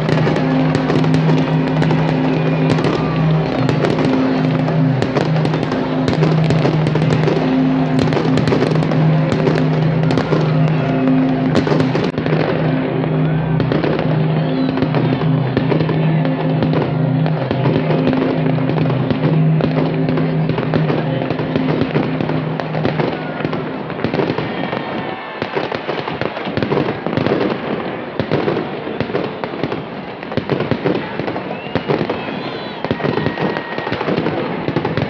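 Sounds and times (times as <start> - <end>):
held music chords: 0.0 - 24.1
fireworks crackling and banging: 0.0 - 35.0.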